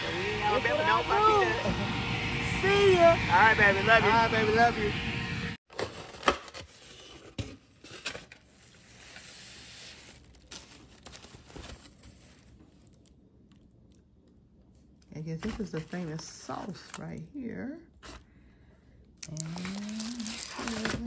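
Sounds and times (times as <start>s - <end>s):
rustling of container and foil: 5.7s - 13.1s, 15.3s - 17.3s, 19.3s - 21.0s.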